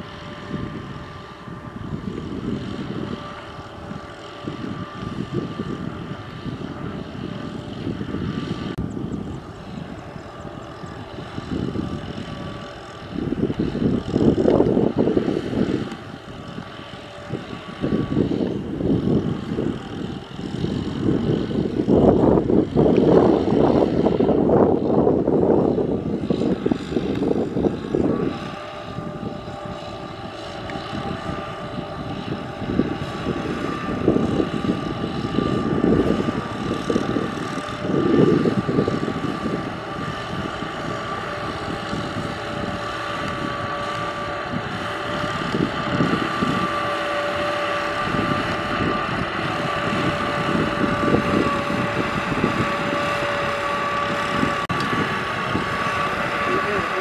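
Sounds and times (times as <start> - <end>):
tractor diesel engine under load: 31.0 - 57.0.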